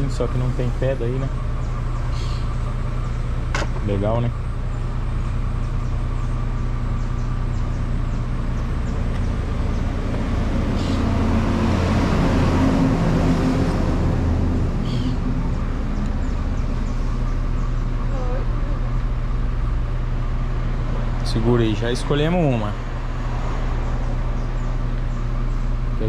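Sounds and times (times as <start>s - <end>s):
road traffic hum: 0.0s - 26.0s
vehicle passing: 8.5s - 18.9s, 20.1s - 25.7s.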